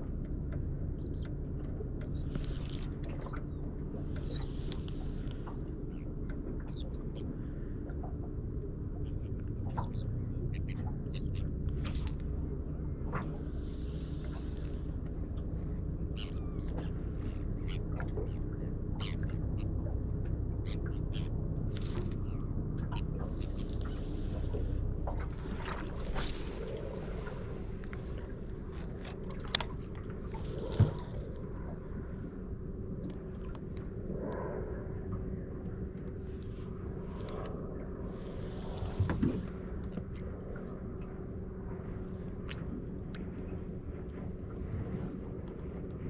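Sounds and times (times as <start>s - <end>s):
boat motor humming: 0.0s - 46.0s
steady low rumble: 0.0s - 46.0s
light ticks: 0.1s - 6.9s, 7.8s - 12.4s, 13.1s - 15.6s, 19.1s - 25.4s, 27.7s - 31.5s, 33.0s - 34.4s, 42.0s - 44.2s.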